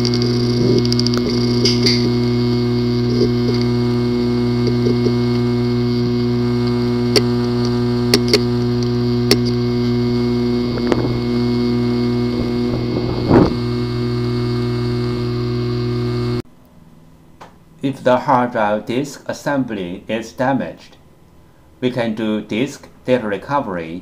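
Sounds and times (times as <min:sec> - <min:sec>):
hard disk drive humming: 0:00.0 - 0:16.4
hard drive head clicks: 0:07.1 - 0:09.6.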